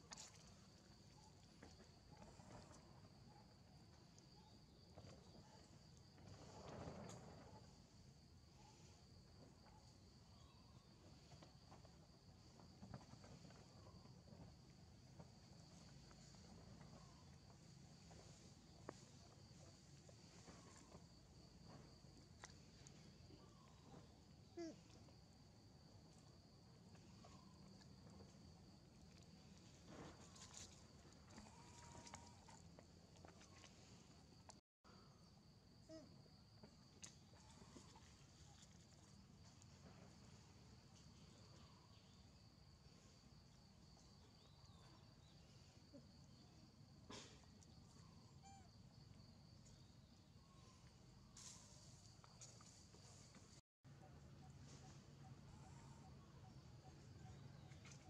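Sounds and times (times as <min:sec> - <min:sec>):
faint chirps: 0:00.0 - 0:14.4, 0:15.6 - 0:25.1, 0:47.3 - 0:58.0.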